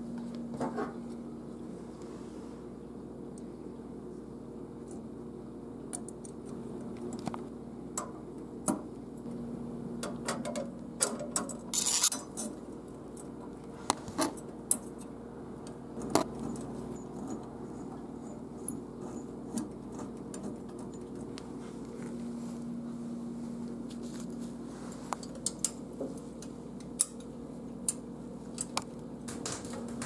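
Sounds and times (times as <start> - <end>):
steady low hum: 0.0 - 30.0
metal parts clicking and clinking: 10.4 - 12.6
short metal scrape: 11.7 - 12.2.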